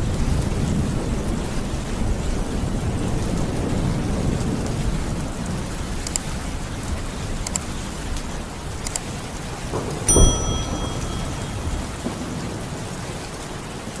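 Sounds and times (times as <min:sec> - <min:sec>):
heavy rain falling: 0:00.0 - 0:14.0
knock with ringing tone: 0:10.1 - 0:12.3.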